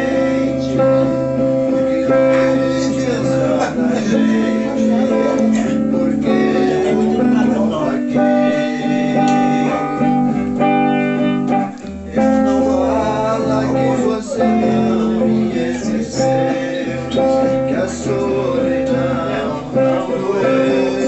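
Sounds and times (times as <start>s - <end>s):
electric guitar chords: 0.0s - 21.0s.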